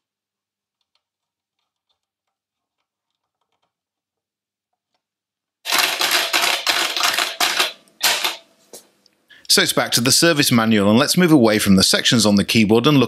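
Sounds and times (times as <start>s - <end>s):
typing on a computer keyboard: 5.7s - 8.4s.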